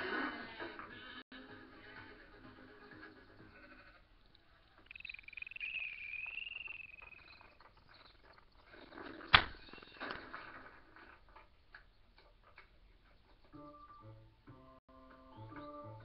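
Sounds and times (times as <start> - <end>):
wavering high whistle tone: 4.8 - 8.1.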